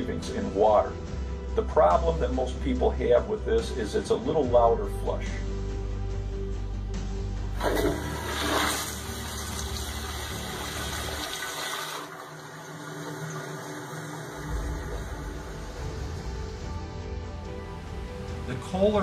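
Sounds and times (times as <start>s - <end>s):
toilet flushing rush of water: 7.6s - 16.6s.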